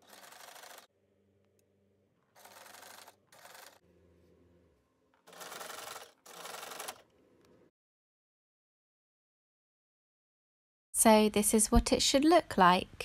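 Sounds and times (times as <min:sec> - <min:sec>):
sewing machine stitching: 0:00.0 - 0:00.9, 0:02.4 - 0:03.8, 0:05.2 - 0:07.1.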